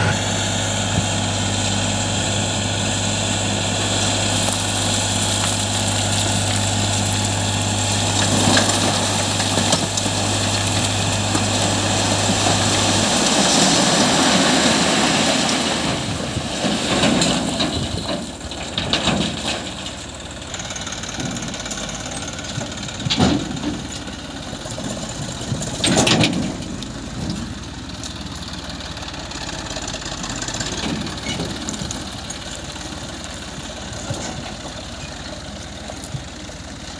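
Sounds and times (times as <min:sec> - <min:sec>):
tractor diesel engine running: 0:00.0 - 0:36.9
rock and soil sliding out: 0:03.6 - 0:20.4.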